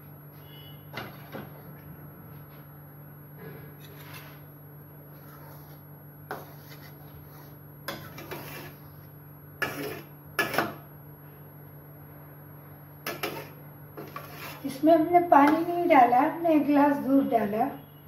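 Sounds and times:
metal spoon scraping a pot: 5.2 - 9.0, 9.6 - 10.7, 13.1 - 15.9.

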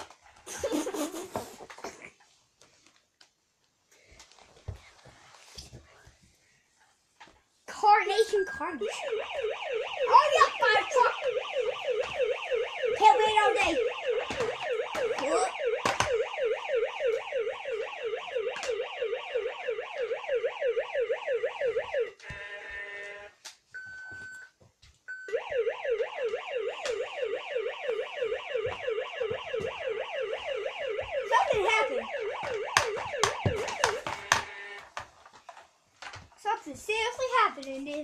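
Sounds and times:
toy siren wailing: 8.8 - 23.3, 25.2 - 34.9.

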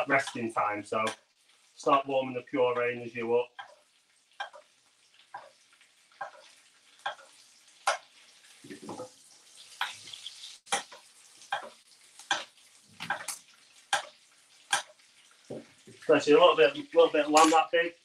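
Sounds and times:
hot fat sizzling: 0.0 - 18.0.

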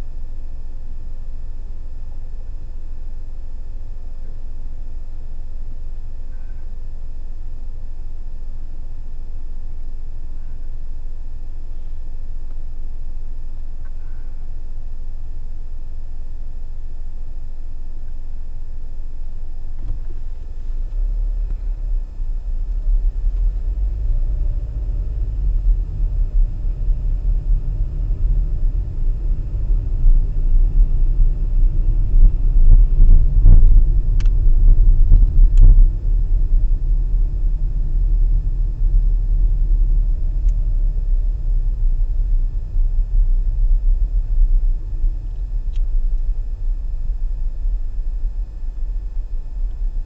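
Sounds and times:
car engine and tyre noise: 19.7 - 50.0.

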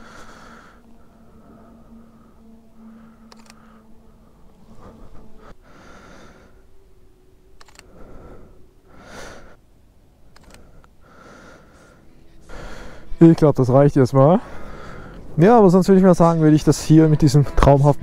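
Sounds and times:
soft breaths: 0.0 - 13.2, 14.3 - 15.4
camera shutter clicking: 3.3 - 3.6, 7.6 - 7.9, 10.3 - 10.6.

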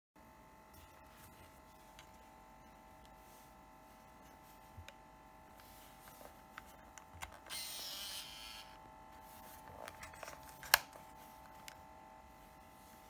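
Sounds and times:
camera motor whirring: 4.8 - 8.8.

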